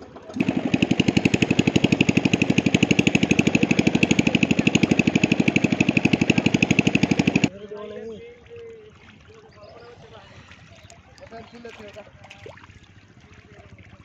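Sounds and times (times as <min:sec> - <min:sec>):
small engine chugging: 0:00.0 - 0:07.5.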